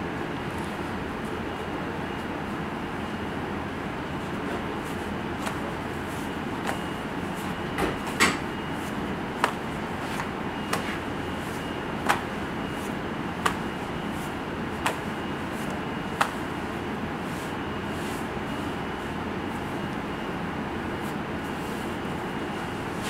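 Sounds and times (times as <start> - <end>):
dough slapping on worktop: 5.3 - 5.8, 6.6 - 8.5, 9.3 - 11.2, 12.0 - 13.9, 14.7 - 16.5.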